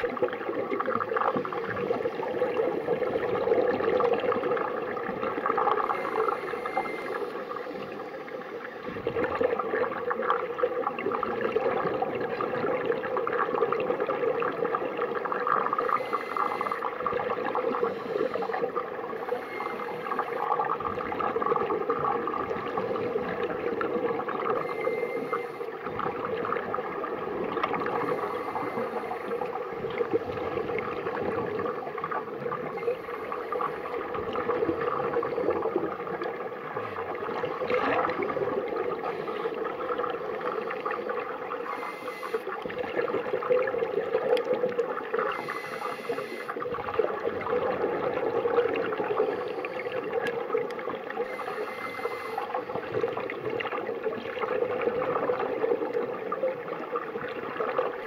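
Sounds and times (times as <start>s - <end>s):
underwater bubbles gurgling: 0.0s - 58.0s
regulator hiss: 15.8s - 16.9s, 17.7s - 20.6s, 27.9s - 29.6s, 41.6s - 42.6s, 45.2s - 46.6s, 51.2s - 52.8s.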